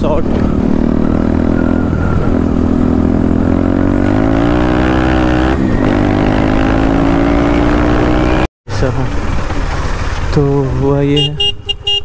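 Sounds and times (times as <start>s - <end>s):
motorcycle engine accelerating: 0.0s - 10.9s.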